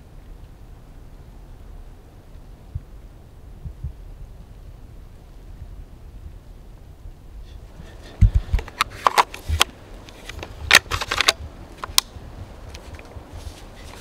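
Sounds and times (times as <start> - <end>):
microphone handling clicks and rustles: 7.8 - 14.0.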